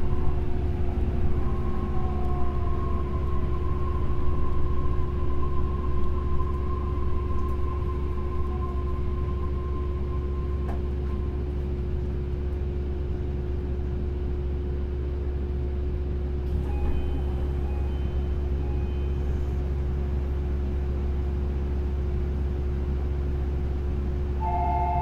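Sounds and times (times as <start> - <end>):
monorail running rumble and hum: 0.0 - 25.0
faint short high tones: 24.4 - 25.0.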